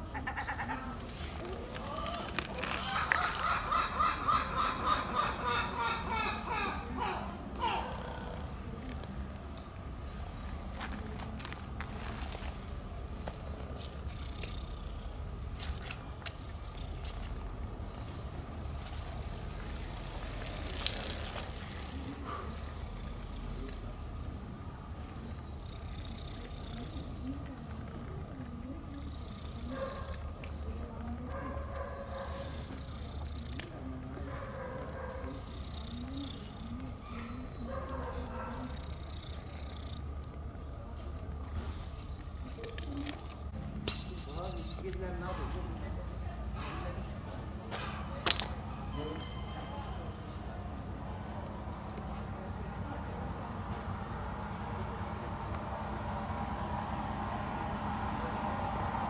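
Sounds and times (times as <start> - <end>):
low outdoor rumble: 0.0 - 59.0
kitten purring: 25.4 - 28.2, 35.3 - 40.5
soft wavering kitten calls: 43.8 - 44.9.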